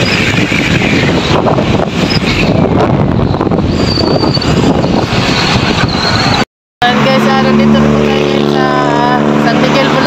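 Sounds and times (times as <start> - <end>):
wind buffeting microphone: 0.0 - 10.0
motorcycle running: 6.8 - 10.0.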